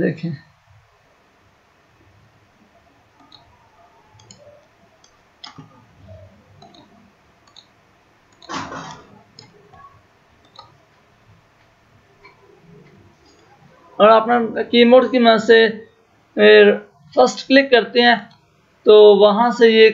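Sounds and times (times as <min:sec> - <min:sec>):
computer mouse clicking: 0:03.2 - 0:13.5.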